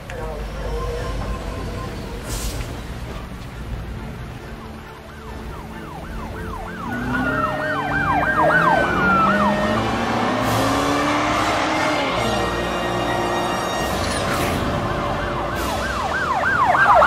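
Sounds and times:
wailing siren: 0.0 - 17.0
fast yelping police siren: 0.2 - 2.6, 4.5 - 10.4, 14.7 - 17.0.

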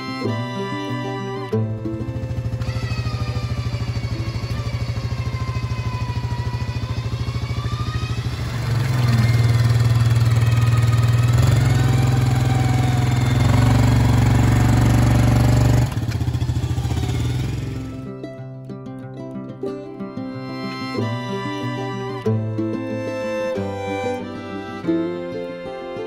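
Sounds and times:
atv engine revving: 1.5 - 18.1.

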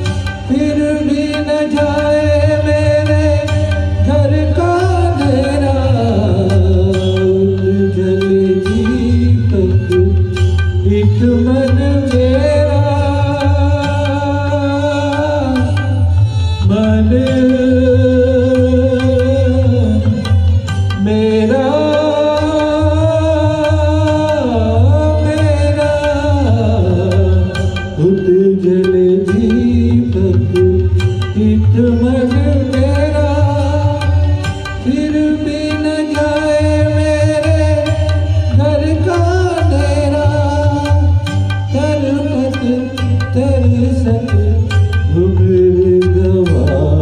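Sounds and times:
backing track with tabla: 0.0 - 47.0
man singing into a microphone: 0.0 - 47.0.

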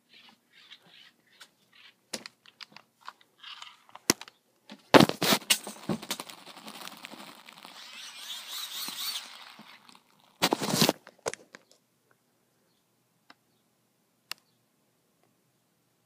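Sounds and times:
close scraping and rustling: 0.0 - 4.1, 4.8 - 11.8
phone handling clicks and crunches: 2.1 - 7.8, 9.6 - 11.8.

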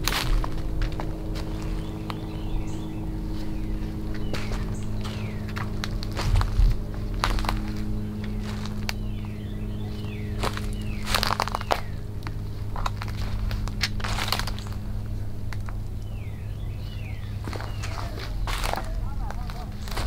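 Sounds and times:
footsteps crunching on dry leaves: 0.0 - 20.0
steady low hum: 0.0 - 20.0.

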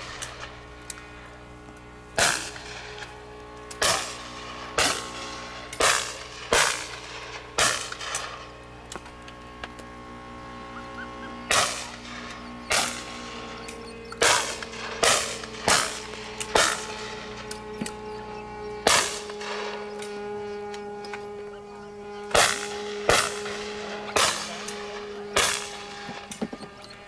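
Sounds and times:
echoing shotgun shots: 2.2 - 3.0, 3.8 - 8.4, 11.5 - 17.7, 18.9 - 19.8, 22.4 - 26.1.

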